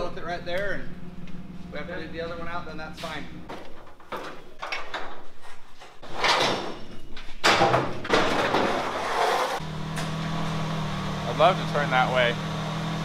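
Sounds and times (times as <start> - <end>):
engine running: 0.0 - 3.5, 9.4 - 13.0
metal ramps scraping and clanking: 3.0 - 10.4.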